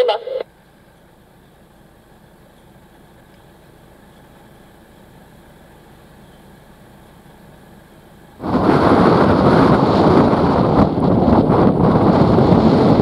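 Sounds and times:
faint low rumble with hiss: 0.0s - 13.0s.

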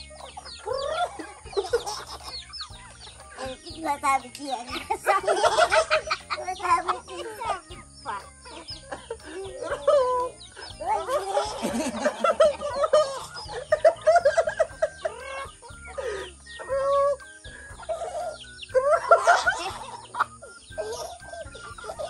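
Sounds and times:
chickens clucking: 0.0s - 22.0s.

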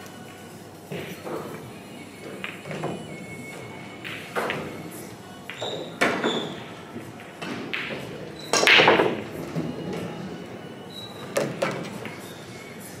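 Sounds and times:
billiard balls clattering: 0.0s - 10.5s
cue striking ball: 4.0s - 4.9s, 7.2s - 9.4s.

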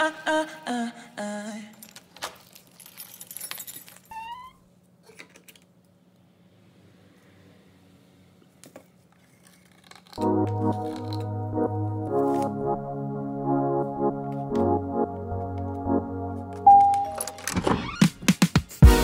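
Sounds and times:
tools clicking and clinking: 9.2s - 11.3s, 16.8s - 17.6s.

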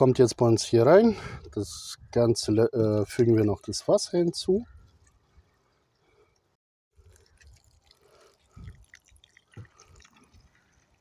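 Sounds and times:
water trickling into a pot: 5.1s - 11.0s.

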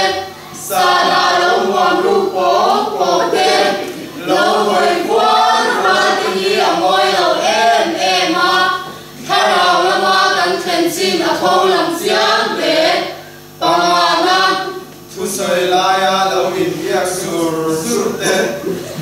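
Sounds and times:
group of voices chanting in unison: 0.0s - 14.8s.

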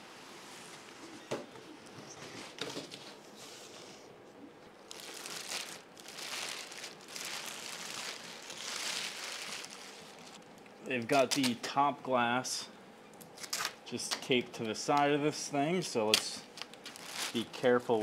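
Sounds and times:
plastic bag crinkling: 4.8s - 10.6s, 16.4s - 18.0s.

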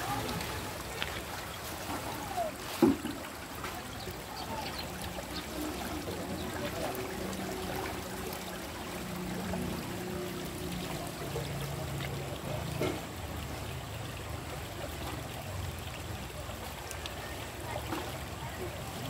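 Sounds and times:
river water trickling: 0.0s - 19.0s.

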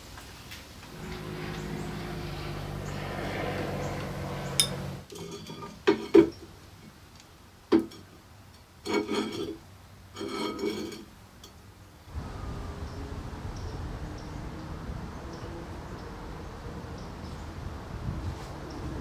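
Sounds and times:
steady machine hum: 0.9s - 5.1s
metal rattling: 0.9s - 5.8s
steel parts knocking and clinking: 4.0s - 6.3s.

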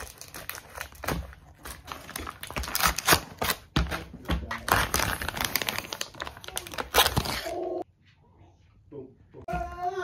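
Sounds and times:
plastic film crinkling: 0.0s - 7.8s.

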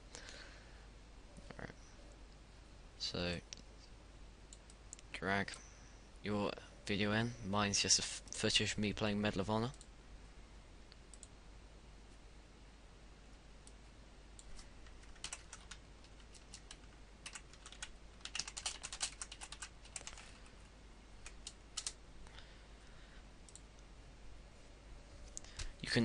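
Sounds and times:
faint keyboard typing: 10.9s - 11.4s, 13.6s - 22.4s, 23.4s - 23.9s, 25.2s - 26.0s.

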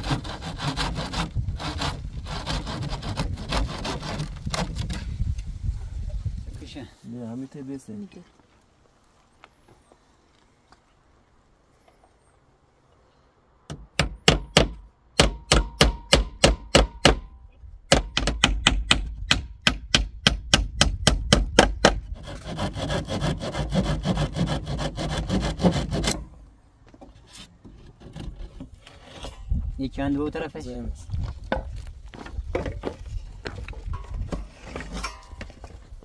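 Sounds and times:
rasping wood noise: 0.0s - 5.1s, 21.7s - 26.2s
hammer striking nails into wood: 13.7s - 17.3s, 17.9s - 22.0s.

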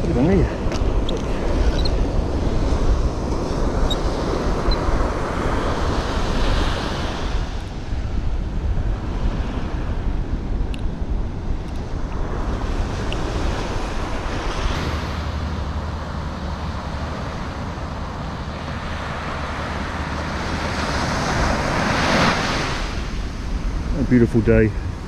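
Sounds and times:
ocean surf breaking on sand: 0.0s - 25.0s
wind buffeting the microphone: 0.0s - 25.0s.

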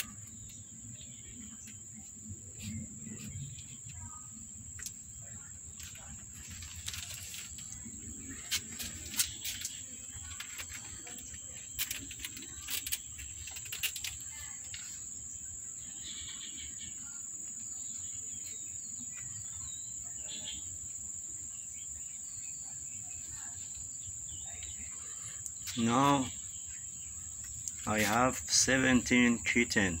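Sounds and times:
sharp clicks and rustles: 5.7s - 15.0s.

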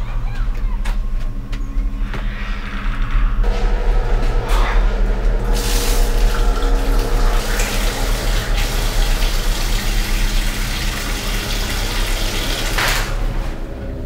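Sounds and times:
low hum: 0.0s - 14.0s
tap water running into sink: 5.6s - 13.2s.

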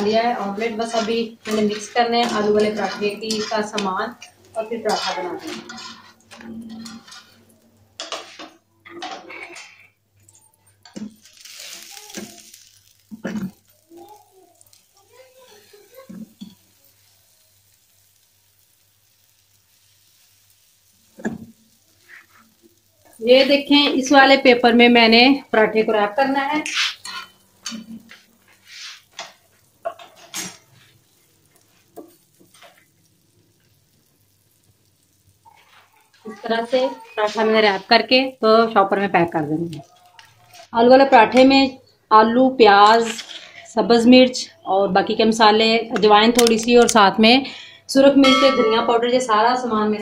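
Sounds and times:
metal spatula scraping frying pan: 0.0s - 13.8s, 21.2s - 25.2s, 26.0s - 32.9s, 42.9s - 43.6s, 48.1s - 49.6s
oil sizzling: 0.0s - 50.0s.

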